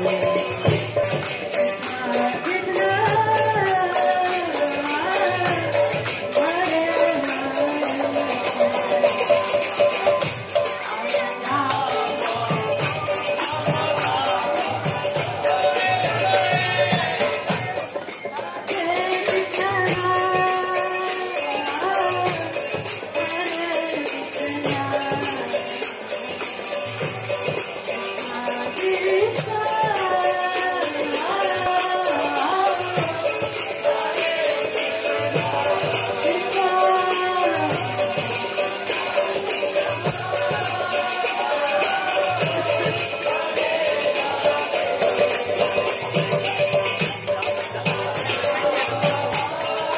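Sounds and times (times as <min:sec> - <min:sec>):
hand cymbals: 0:00.0 - 0:49.9
hand drum beat: 0:00.0 - 0:49.9
voices chanting a devotional melody: 0:00.0 - 0:49.9.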